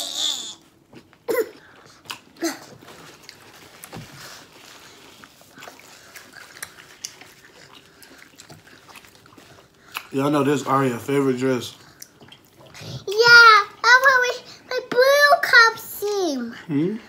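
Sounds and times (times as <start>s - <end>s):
chewing and lip-smacking: 0.9s - 10.3s, 11.7s - 13.1s.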